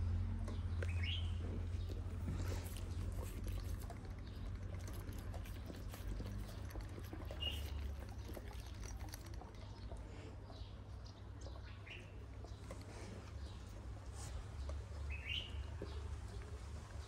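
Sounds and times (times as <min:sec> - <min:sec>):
steady low rumble: 0:00.0 - 0:11.4
bird chirp: 0:00.5 - 0:17.0
puppy sniffing and licking: 0:00.7 - 0:17.0.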